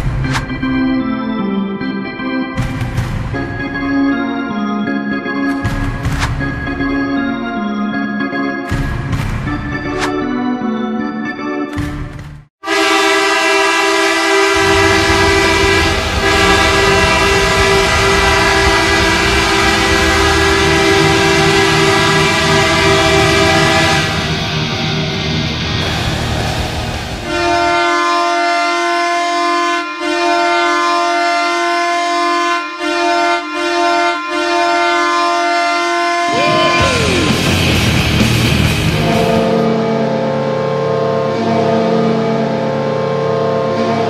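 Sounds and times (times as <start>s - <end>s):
arena goal horn blasting: 12.6s - 24.9s, 27.2s - 37.4s, 39.0s - 44.0s
crowd cheering: 12.8s - 28.2s, 36.3s - 39.6s.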